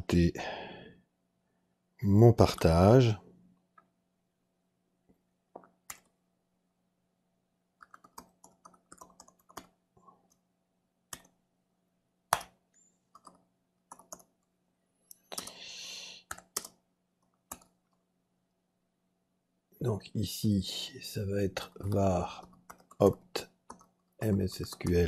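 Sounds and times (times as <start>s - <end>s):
keyboard typing: 7.8s - 10.4s, 11.1s - 11.4s, 12.3s - 14.5s, 16.2s - 18.0s, 21.6s - 25.0s.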